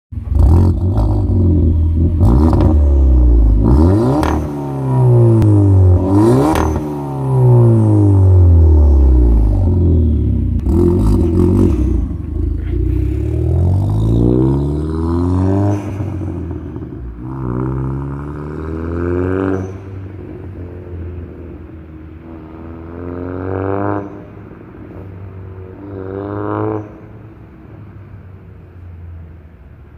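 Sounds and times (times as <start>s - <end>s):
exhaust crackle: 0.2s - 18.3s
car engine revving: 0.2s - 27.5s.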